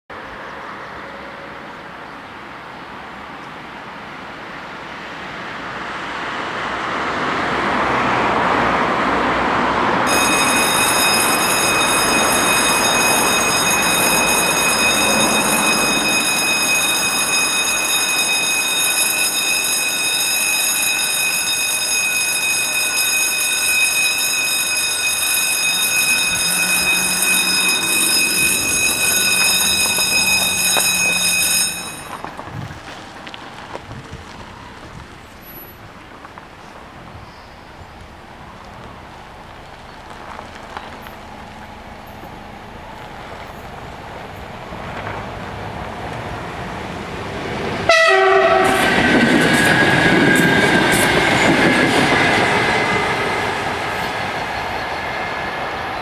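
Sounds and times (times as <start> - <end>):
level crossing warning bells: 10.0 - 32.4, 47.8 - 56.0.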